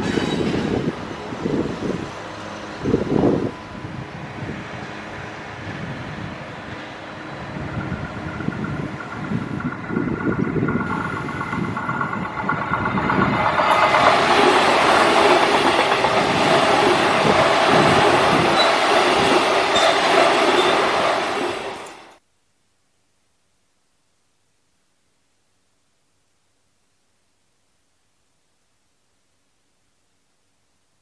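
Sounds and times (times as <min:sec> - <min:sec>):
electric train passing: 0:00.0 - 0:22.2.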